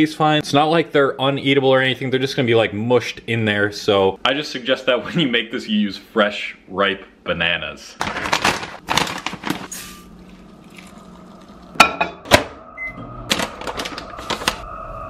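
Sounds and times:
plastic bag of oats rustling: 0:08.0 - 0:09.7
microwave beep: 0:12.3 - 0:15.0.

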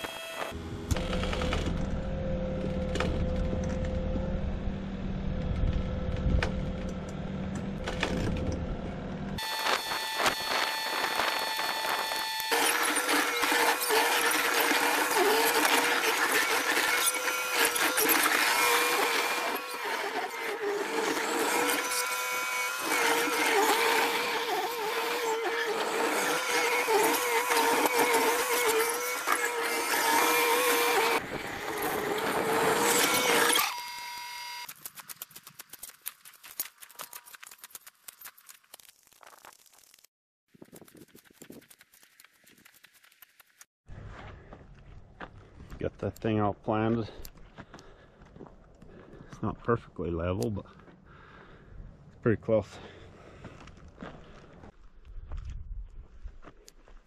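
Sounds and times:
skid steer engine and hydraulics whining: 0:00.0 - 0:34.7.

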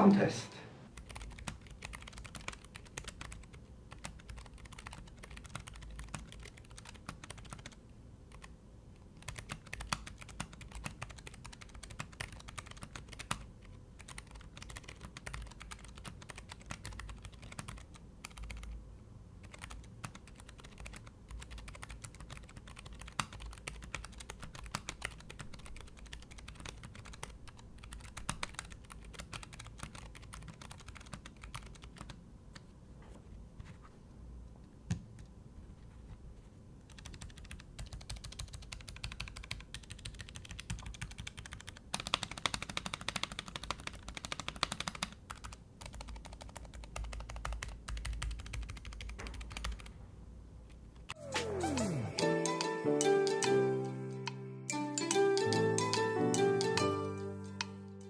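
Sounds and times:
mechanical keyboard typing: 0:00.9 - 0:08.5, 0:09.2 - 0:18.8, 0:19.4 - 0:32.7, 0:36.9 - 0:49.9.

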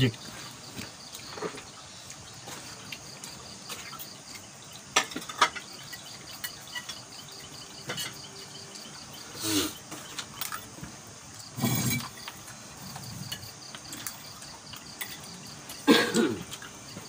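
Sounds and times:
night insects trilling: 0:00.0 - 0:17.0
cutlery clicks and clinks: 0:13.3 - 0:15.4.

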